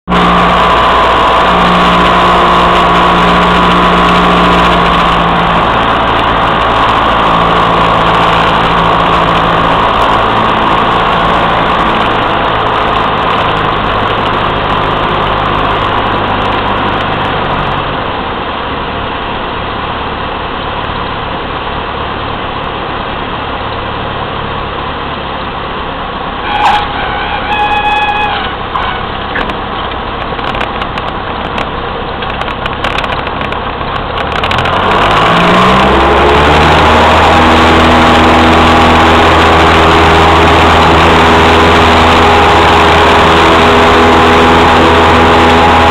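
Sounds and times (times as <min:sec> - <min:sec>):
airplane engine and propeller: 0:00.0 - 0:45.9
stall warning horn: 0:00.1 - 0:12.9, 0:26.4 - 0:29.2.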